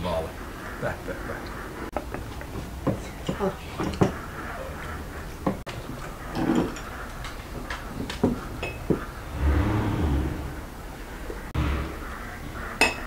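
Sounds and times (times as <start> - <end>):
plates and glasses clinking: 1.9 - 9.1, 12.8 - 13.0.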